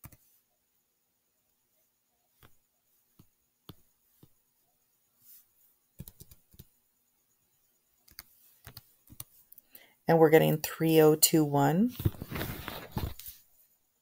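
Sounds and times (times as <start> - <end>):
computer keyboard clicks: 6.0 - 6.7.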